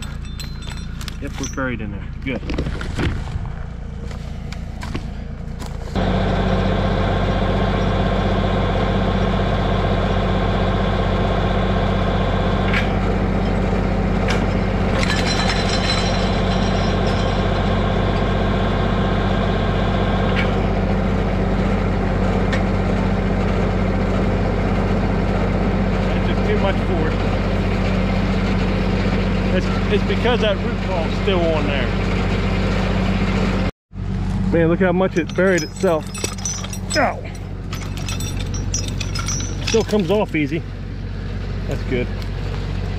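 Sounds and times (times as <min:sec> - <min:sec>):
tractor diesel engine running: 0:00.0 - 0:42.9
log winch dragging log: 0:34.7 - 0:40.7.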